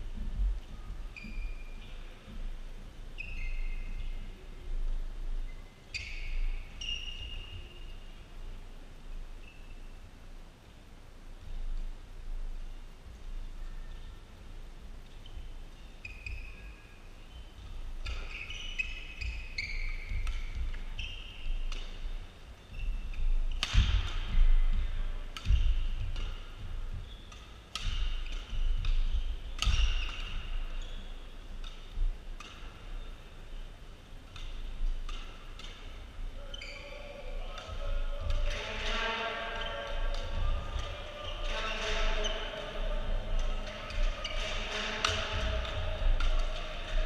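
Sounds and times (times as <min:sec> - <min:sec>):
shoes squeaking on court floor: 0:00.4 - 0:04.4, 0:05.5 - 0:08.2, 0:15.1 - 0:47.0
racket hitting shuttlecock: 0:18.0 - 0:22.1, 0:23.1 - 0:31.0, 0:34.2 - 0:36.1, 0:37.3 - 0:47.0.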